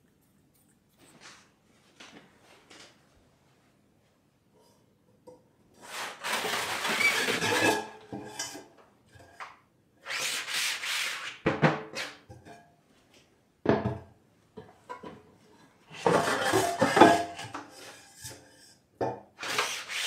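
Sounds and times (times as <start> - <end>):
frames scraping on wooden shelf: 5.8 - 8.0.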